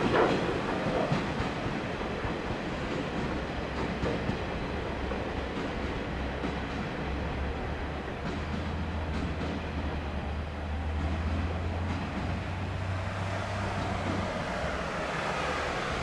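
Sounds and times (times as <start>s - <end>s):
diesel train engines droning: 4.4s - 16.0s.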